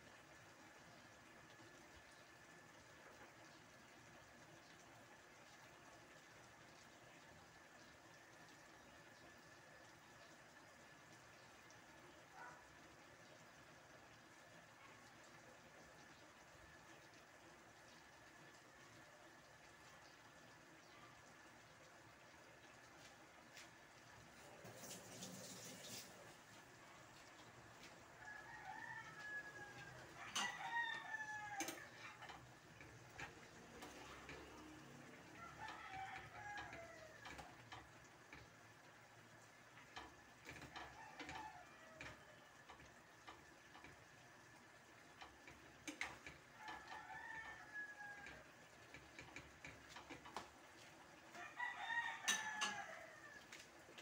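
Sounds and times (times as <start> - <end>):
rooster crowing: 28.2 - 32.3, 34.1 - 37.5, 40.7 - 42.4, 46.5 - 48.5, 51.3 - 53.5.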